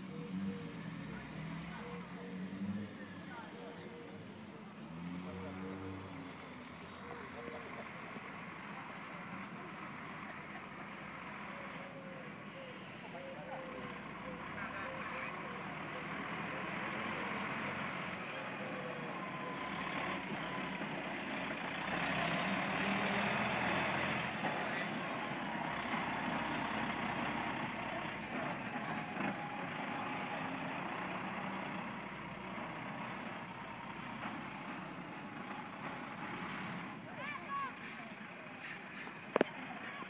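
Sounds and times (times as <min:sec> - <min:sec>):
truck diesel engine running: 0:00.0 - 0:40.0.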